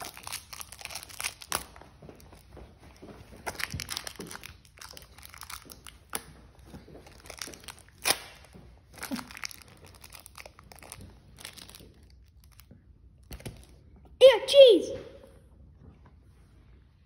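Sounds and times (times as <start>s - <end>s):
plastic wrapper crinkling: 0.0s - 2.4s, 3.4s - 13.8s.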